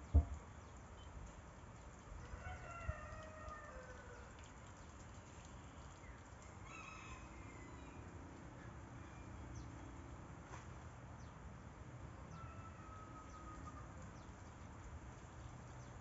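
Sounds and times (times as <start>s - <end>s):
faint rooster crow: 2.2s - 4.6s, 6.4s - 9.7s, 12.2s - 14.3s.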